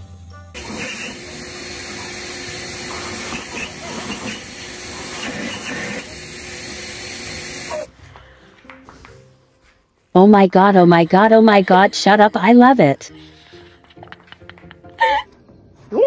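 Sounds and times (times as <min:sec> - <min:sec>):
leaf blower air rushing: 0:00.6 - 0:07.9.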